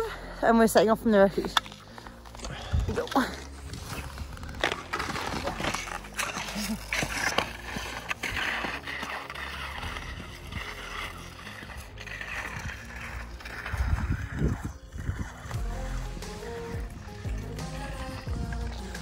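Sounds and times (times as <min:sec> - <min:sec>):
skis scraping over snow: 0:00.6 - 0:19.0
wind rumble on microphone: 0:09.6 - 0:17.1.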